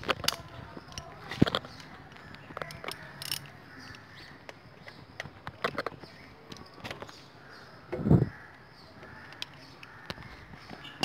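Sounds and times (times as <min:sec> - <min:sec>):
socket wrench clicking on bolts: 0:00.0 - 0:04.0.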